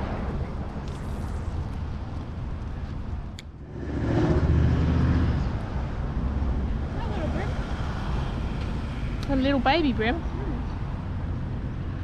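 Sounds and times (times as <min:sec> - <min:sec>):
low outdoor rumble: 0:00.0 - 0:12.0
vehicle passing: 0:03.5 - 0:12.0.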